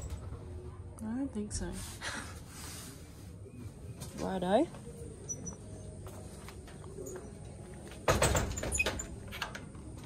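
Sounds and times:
louvered door rattling: 8.1 - 9.6.

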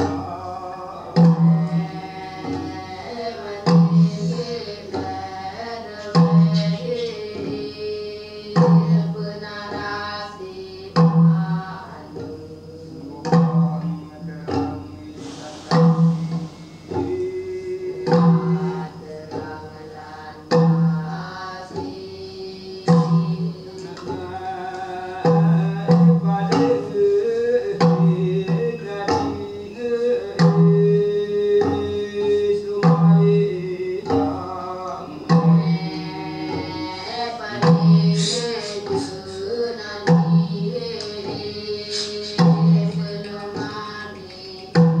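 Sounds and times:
person singing: 0.0 - 45.0
quick percussive knocks: 3.6 - 7.7, 13.2 - 19.6, 22.8 - 34.6, 35.2 - 45.0
low percussive strokes: 12.1 - 22.1.

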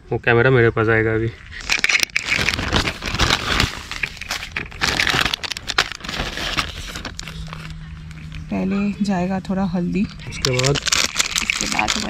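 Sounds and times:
rustling handling noise: 1.4 - 8.5, 10.0 - 12.0.

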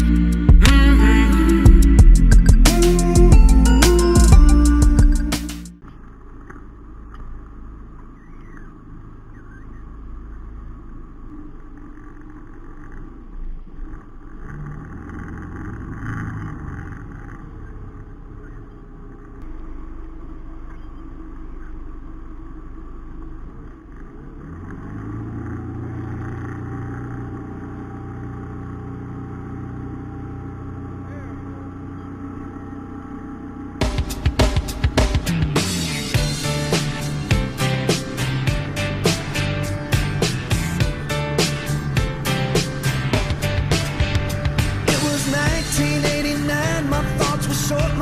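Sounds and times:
boat engine running: 6.0 - 48.0.

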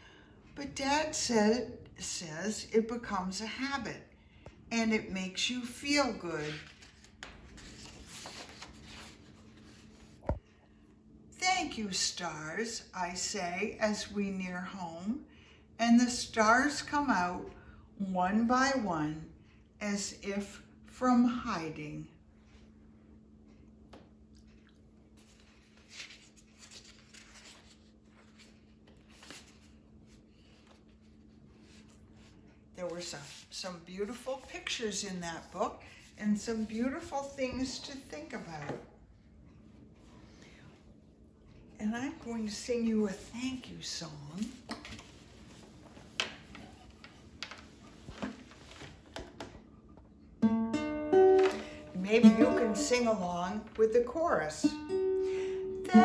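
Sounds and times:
faint steady hum: 0.0 - 56.0
book pages rustling: 6.0 - 10.4, 25.1 - 34.7, 44.4 - 49.6.

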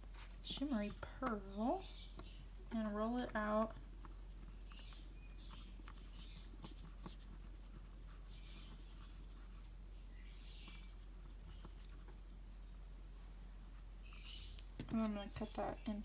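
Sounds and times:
fingertips rubbing clay: 3.0 - 9.9, 10.6 - 12.3.

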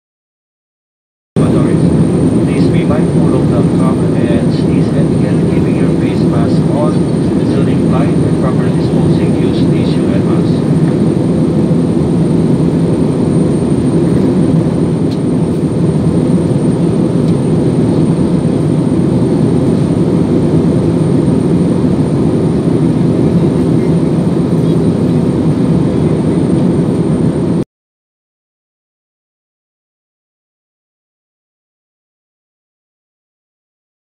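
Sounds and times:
jet cabin engine rumble: 1.4 - 27.6.

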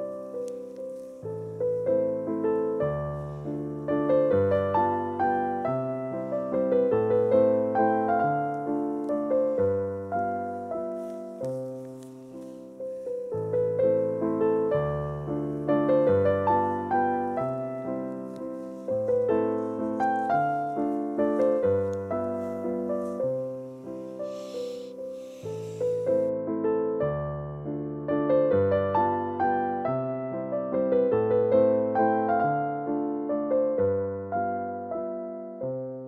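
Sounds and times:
gentle piano melody: 0.0 - 36.0.

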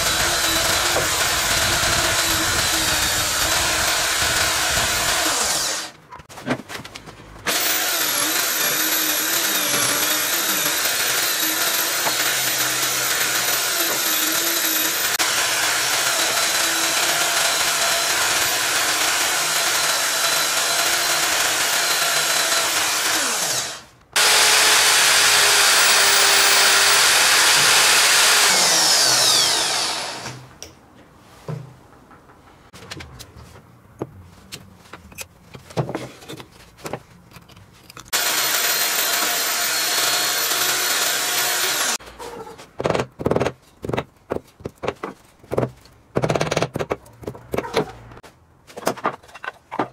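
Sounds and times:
electric drill running: 0.0 - 5.9, 7.5 - 30.4, 38.1 - 42.0.

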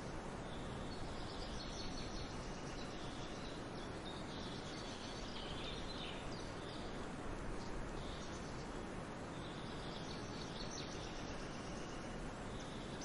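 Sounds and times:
forest ambience hiss and rumble: 0.0 - 13.0
faint high bird chirps: 7.6 - 13.0.

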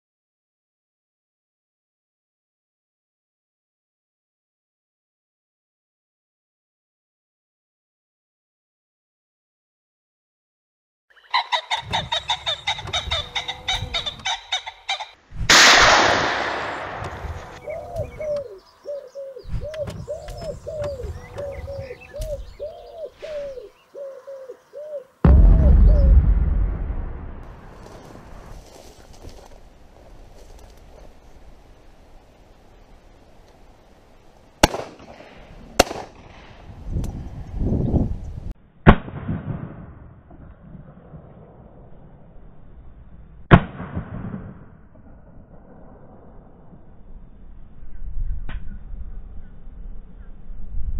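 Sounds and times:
bird rattling call: 11.3 - 15.2
shotgun shots echoing: 15.5 - 17.6, 25.3 - 27.5, 34.6 - 36.3
short rising-and-falling bird calls: 17.6 - 25.2
loud noisy burst: 25.3 - 27.8
low rumble: 25.3 - 28.6.

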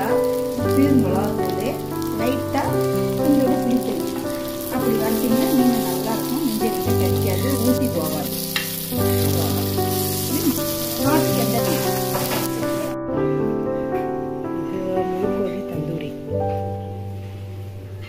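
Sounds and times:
fish sizzling on a griddle: 0.0 - 13.0.

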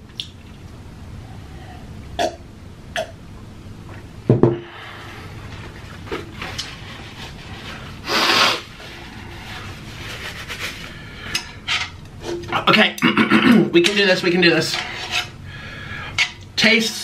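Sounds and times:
paper napkin rustling: 5.4 - 11.0
nose blowing: 8.0 - 11.2.

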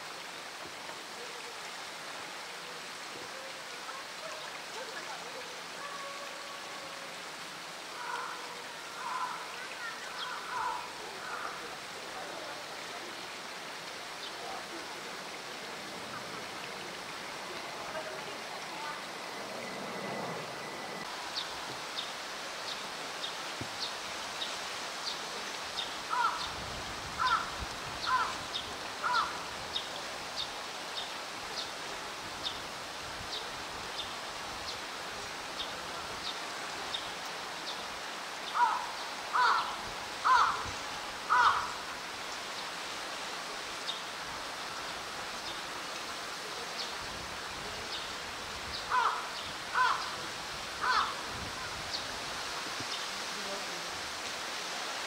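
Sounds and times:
crow cawing: 8.0 - 8.4, 9.0 - 9.5, 10.2 - 11.6, 26.1 - 26.4, 27.2 - 28.4, 29.0 - 29.4, 38.6 - 40.7, 41.3 - 41.8, 48.9 - 50.2, 50.8 - 51.2.

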